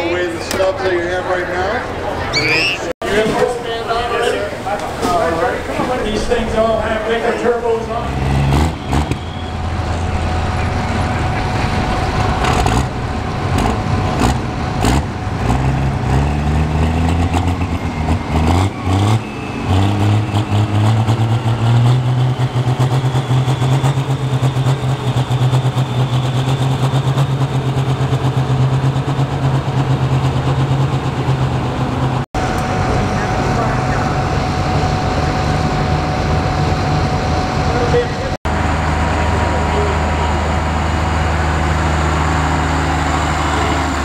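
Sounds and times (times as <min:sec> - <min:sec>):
turbo whistle: 0:02.3 - 0:02.9, 0:08.3 - 0:10.1, 0:17.6 - 0:27.2
diesel truck engine revving: 0:03.8 - 0:44.0.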